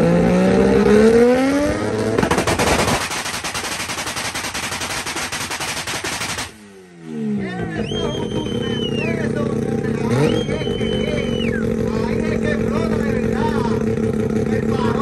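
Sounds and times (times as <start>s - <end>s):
rotary engine revving: 0.0s - 15.0s
exhaust pops and bangs: 2.0s - 6.6s, 11.7s - 14.5s.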